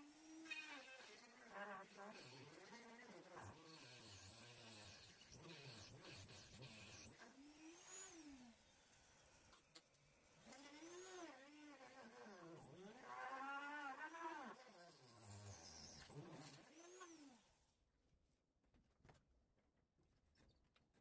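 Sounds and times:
electric drill drilling into wood: 0.0s - 9.6s, 10.4s - 17.4s.

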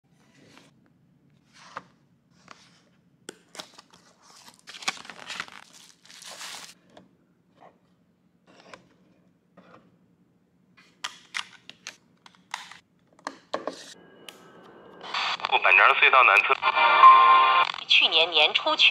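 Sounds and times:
cardboard packaging rustling: 3.5s - 6.8s.

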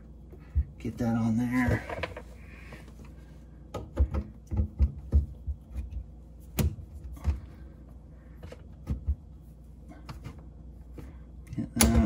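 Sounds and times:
plastic pipe clicking and knocking: 3.7s - 7.4s.

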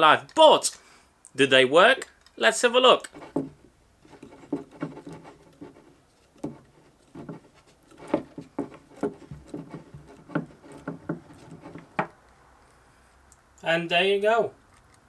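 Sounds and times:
wooden clamp clicking and knocking: 3.0s - 12.2s.

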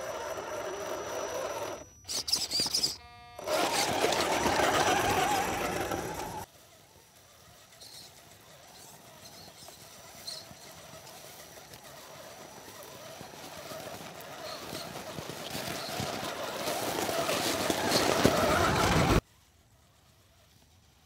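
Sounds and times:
electric motors whining: 0.0s - 6.5s.

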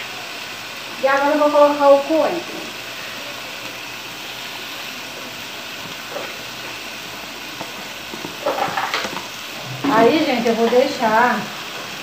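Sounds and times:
chicken sizzling in a pot: 0.0s - 12.0s.

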